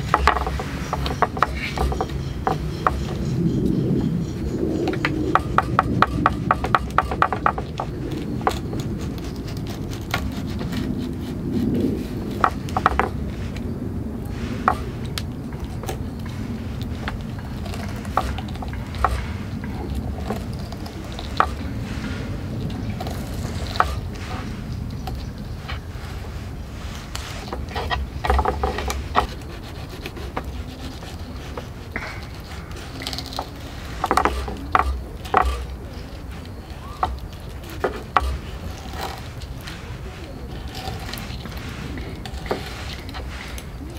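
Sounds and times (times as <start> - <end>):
knife scraping fish: 5.4 - 43.9.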